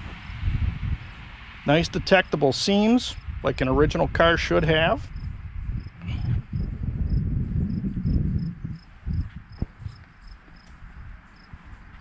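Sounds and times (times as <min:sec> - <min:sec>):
wind rumble on microphone: 0:00.0 - 0:12.0
crickets chirping: 0:05.1 - 0:11.6.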